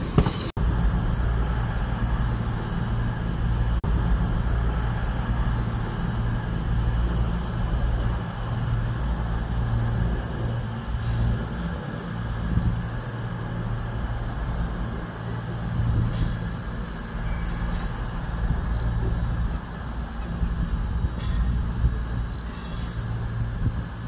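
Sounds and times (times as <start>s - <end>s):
train hum: 0.0s - 24.0s
train wheels squealing: 16.0s - 19.2s, 21.1s - 23.4s.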